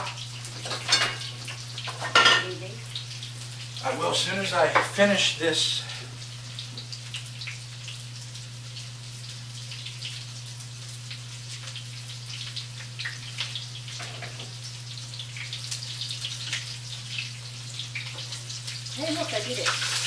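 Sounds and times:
chicken frying in oil: 0:00.0 - 0:20.0.

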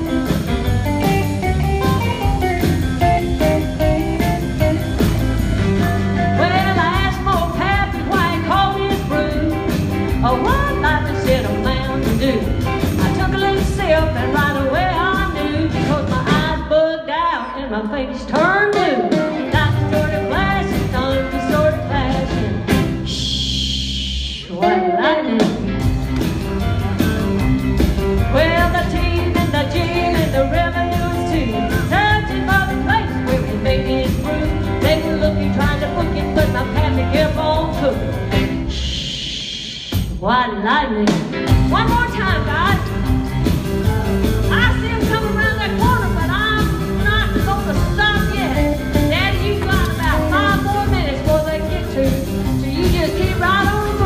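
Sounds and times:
lead guitar bending notes: 0:00.0 - 0:15.9, 0:24.5 - 0:38.7
live rock band playing: 0:00.0 - 0:16.8, 0:18.2 - 0:40.3, 0:40.9 - 0:54.0.

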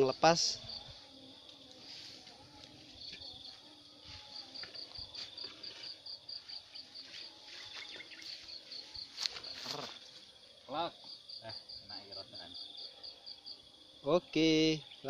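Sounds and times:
insect trill: 0:00.0 - 0:15.0
insects chirping: 0:00.0 - 0:15.0
footsteps rustling through grass: 0:00.5 - 0:10.4.

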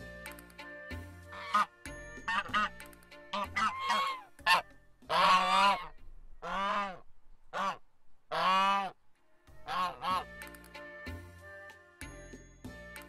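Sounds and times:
geese honking: 0:01.3 - 0:09.0, 0:09.6 - 0:10.3.

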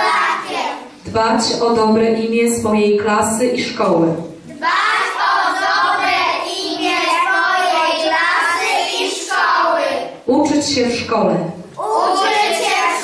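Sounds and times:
children chanting in unison: 0:00.0 - 0:01.0, 0:04.5 - 0:10.2, 0:11.8 - 0:13.0.

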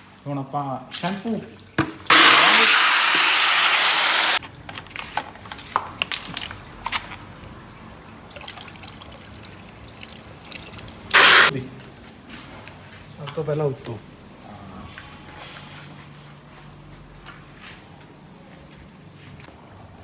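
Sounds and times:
hose spraying into plastic bucket: 0:02.1 - 0:04.4, 0:11.1 - 0:11.5.

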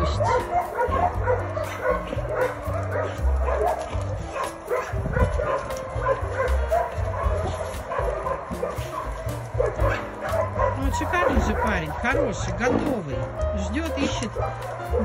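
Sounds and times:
dog yipping and whining: 0:00.0 - 0:12.0
background music with bass line: 0:00.0 - 0:15.0.

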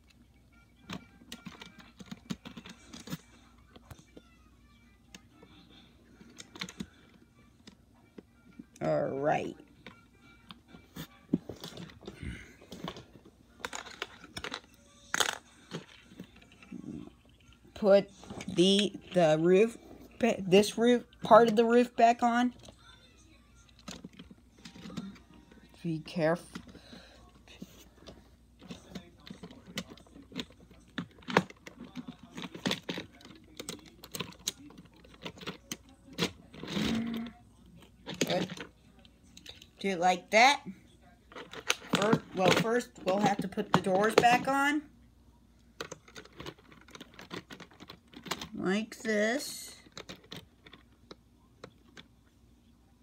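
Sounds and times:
plastic pieces clicking: 0:45.8 - 0:48.5, 0:49.8 - 0:52.1.

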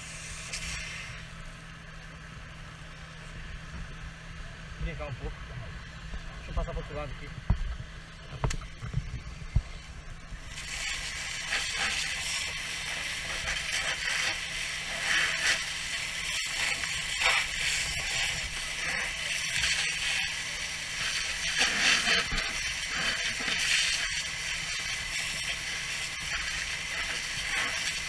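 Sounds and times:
fire hose spraying water: 0:00.0 - 0:01.5, 0:09.5 - 0:28.0.

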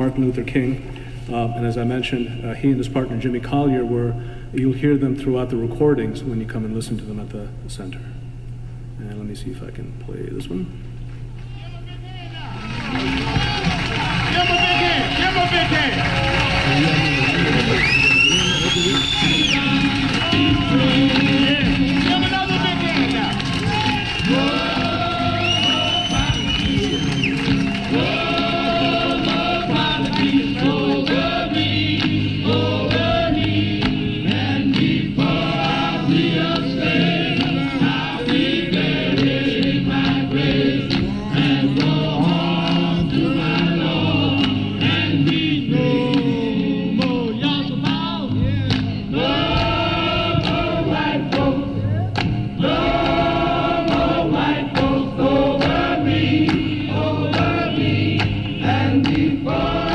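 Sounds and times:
crowd singing along over loudspeakers: 0:13.3 - 0:59.9.

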